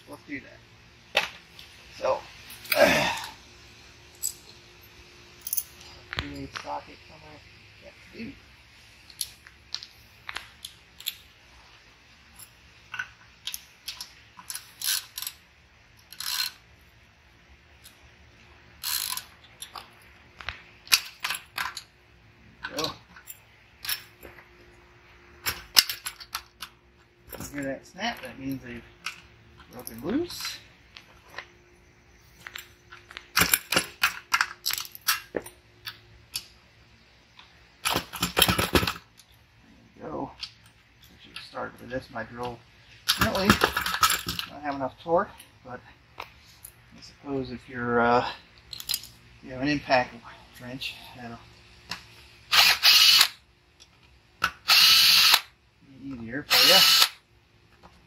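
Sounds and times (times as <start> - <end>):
metal tools clicking: 4.1 - 4.5, 32.4 - 36.5, 48.6 - 49.2
metal clinking rattles: 4.1 - 6.5.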